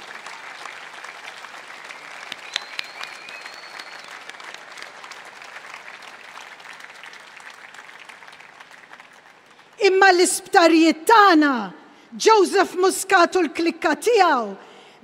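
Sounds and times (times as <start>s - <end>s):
large crowd clapping: 0.0s - 9.9s
thin whistle: 2.4s - 4.2s.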